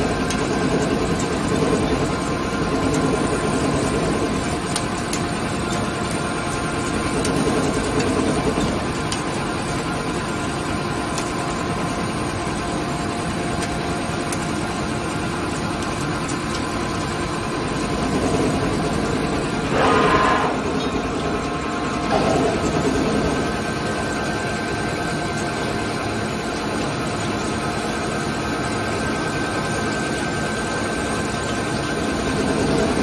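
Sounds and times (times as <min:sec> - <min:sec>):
steady machine tones: 0:16.6 - 0:27.5
lathe machine hum: 0:16.9 - 0:28.2.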